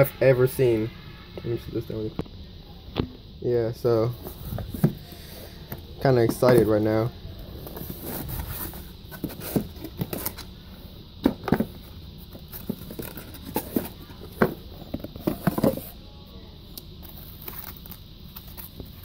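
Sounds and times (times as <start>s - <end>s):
cardboard box handled and opened: 6.1s - 10.5s, 11.2s - 16.0s.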